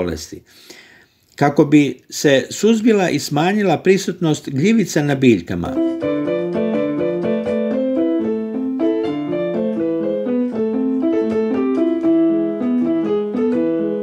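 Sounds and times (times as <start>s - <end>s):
piano music: 4.5s - 14.0s.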